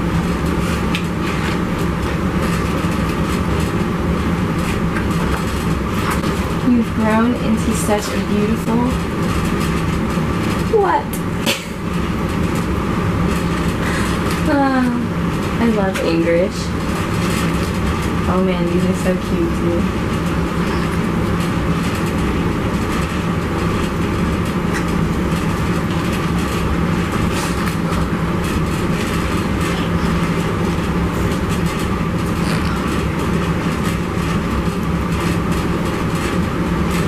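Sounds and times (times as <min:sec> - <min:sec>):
machine rumbling drone: 0:00.0 - 0:37.0
speech: 0:06.6 - 0:09.0, 0:10.7 - 0:11.2, 0:14.5 - 0:16.7, 0:18.3 - 0:19.9.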